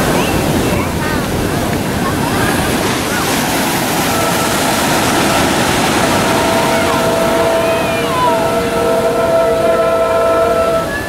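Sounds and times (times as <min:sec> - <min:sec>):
ocean surf breaking: 0:00.0 - 0:11.0
distant locomotive air horn: 0:03.8 - 0:11.0.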